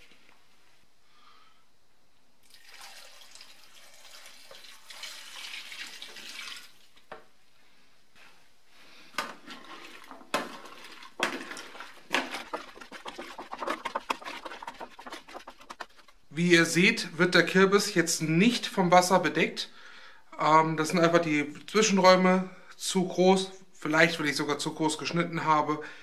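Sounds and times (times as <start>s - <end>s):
spoon stirring and scraping: 9.2s - 16.3s
water splashing onto pumpkin cubes: 9.6s - 15.7s.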